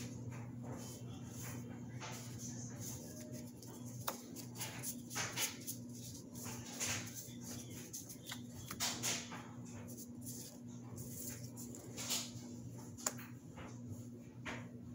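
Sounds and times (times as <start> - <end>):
cards swishing and slapping: 1.5 - 12.4.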